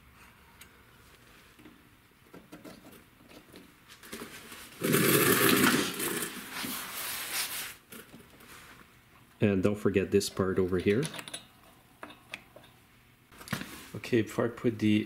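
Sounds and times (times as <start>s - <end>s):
cloth rag rubbing and wiping: 6.4s - 7.8s.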